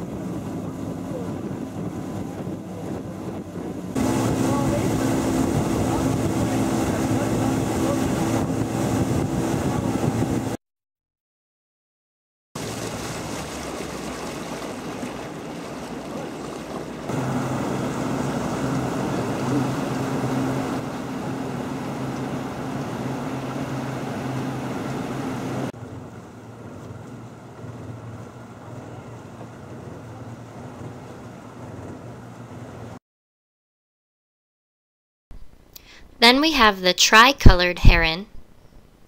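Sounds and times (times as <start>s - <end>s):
boat motor running: 0.0s - 10.6s, 12.6s - 33.0s
water noise: 0.0s - 10.6s, 12.6s - 33.0s
wind: 0.0s - 10.6s, 12.6s - 33.0s, 35.4s - 39.0s.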